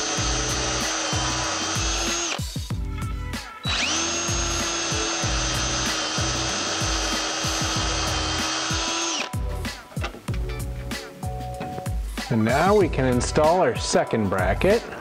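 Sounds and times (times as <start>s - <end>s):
power drill boring into wood: 0.0s - 2.6s, 3.7s - 9.4s.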